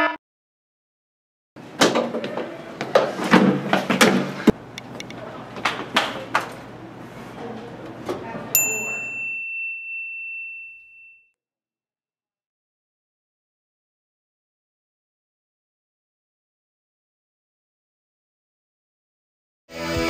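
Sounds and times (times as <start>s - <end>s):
bright ding: 8.6s - 11.4s.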